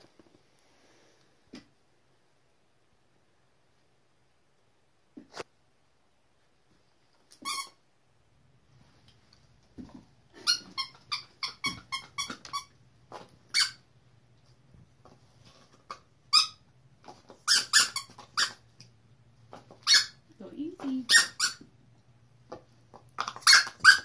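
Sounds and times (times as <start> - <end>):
plastic toy squeaker squeaking: 7.4 - 7.8, 10.4 - 12.8, 13.5 - 13.8, 16.3 - 16.6, 17.3 - 18.6, 19.7 - 20.2, 21.1 - 21.6, 23.2 - 24.0.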